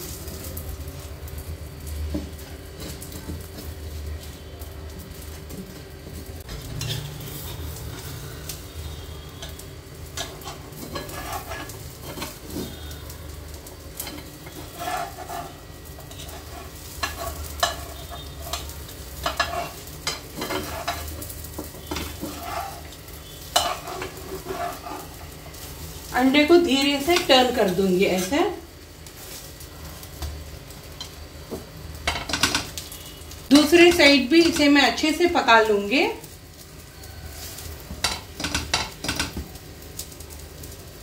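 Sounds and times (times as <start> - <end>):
omelet sizzling in oil: 0.0 - 41.0
steel spatula scraping pan: 6.7 - 13.0, 14.0 - 25.7.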